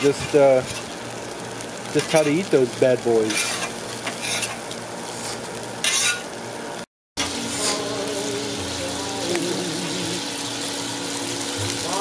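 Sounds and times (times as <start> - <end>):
bacon sizzling: 0.0 - 12.0
food sizzling on a griddle: 0.0 - 12.0
metal spatula scraping: 3.3 - 4.6, 5.8 - 6.3.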